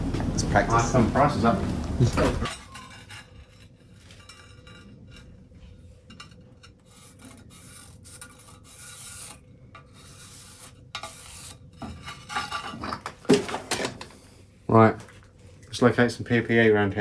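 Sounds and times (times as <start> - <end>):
marker pen rubbing on steel: 6.8 - 11.6.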